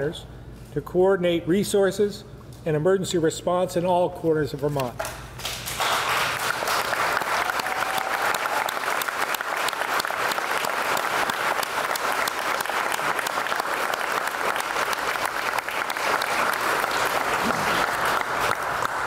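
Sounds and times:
group of people clapping: 0:05.0 - 0:19.0.

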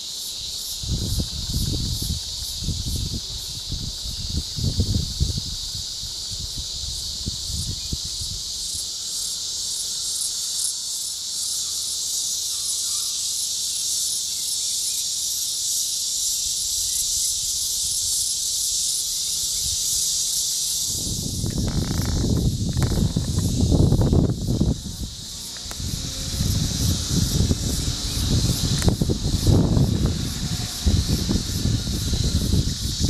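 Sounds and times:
insects buzzing: 0:00.0 - 0:33.0.

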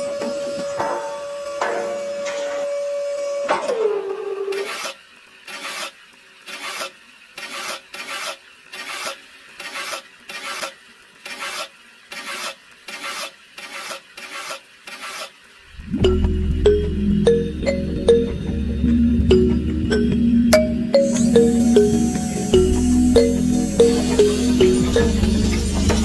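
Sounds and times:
tool scraping mortar on metal: 0:04.6 - 0:15.4.

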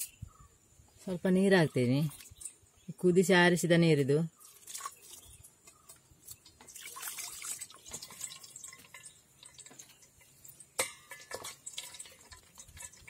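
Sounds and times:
water trickling and dripping: 0:04.4 - 0:13.0.

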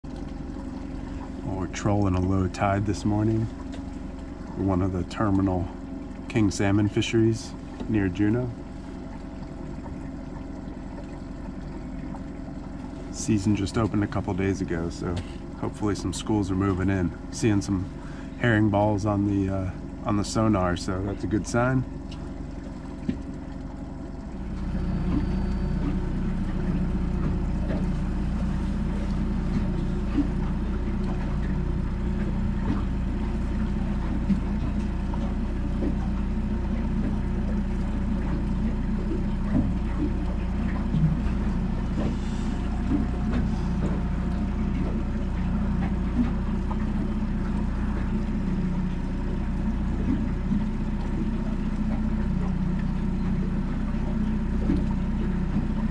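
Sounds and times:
outboard motor humming: 0:00.0 - 0:55.9.

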